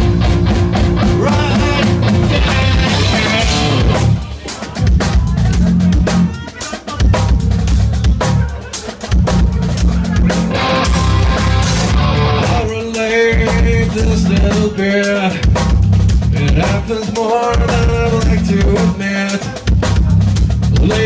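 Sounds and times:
electric guitar: 0.0s - 4.3s, 8.2s - 15.6s
bass guitar: 0.0s - 21.0s
drum kit: 0.0s - 21.0s.

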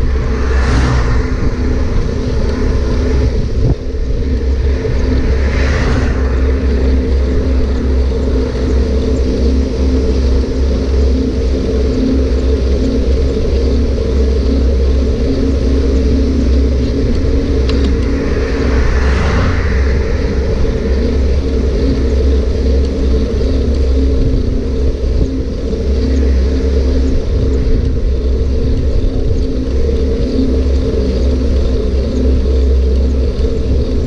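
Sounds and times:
car passing: 0.0s - 9.0s, 15.7s - 23.2s
wind and riding noise: 0.0s - 34.0s.

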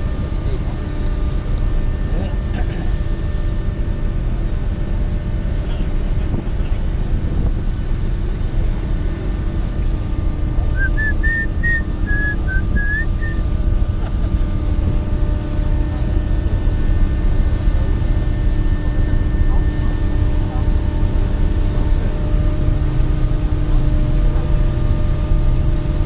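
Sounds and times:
ferry engines humming: 0.0s - 26.0s
wind buffeting microphone: 5.0s - 18.4s
wavering whistle: 10.8s - 13.4s.

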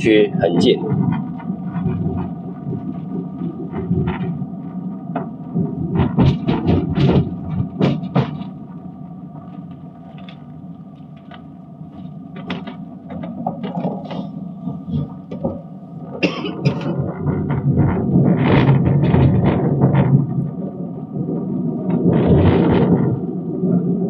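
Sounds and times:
car cabin road hum: 0.0s - 24.0s
sharp knocks and rattles: 0.4s - 4.5s, 5.1s - 10.5s, 11.1s - 20.5s.

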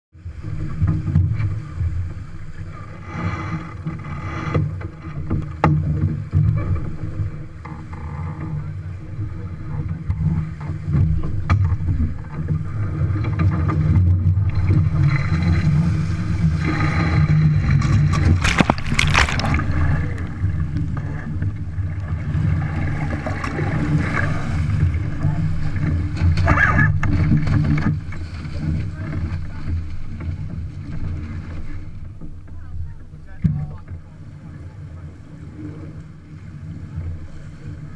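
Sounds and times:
water rushing along hull: 0.2s - 37.9s
water pouring over boat side: 16.5s - 20.7s.

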